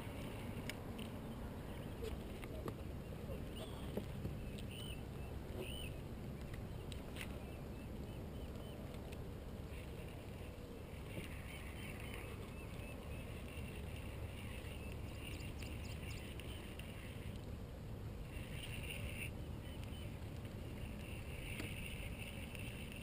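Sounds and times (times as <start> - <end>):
wind and water rumble: 0.0 - 23.0
faint high bird chirps: 3.0 - 6.0.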